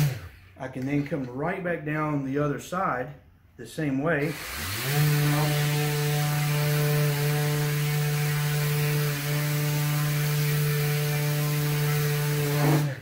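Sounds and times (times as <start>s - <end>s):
sander motor hum: 4.2s - 13.0s
abrasive hissing on wood: 11.1s - 13.0s.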